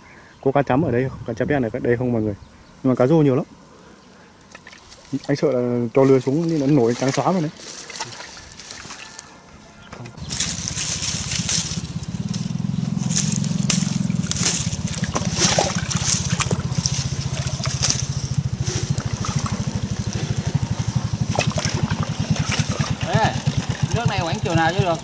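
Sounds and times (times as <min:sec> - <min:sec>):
water splashing: 0:04.5 - 0:05.4, 0:06.0 - 0:09.3, 0:13.2 - 0:25.0
engine idling: 0:10.0 - 0:25.0.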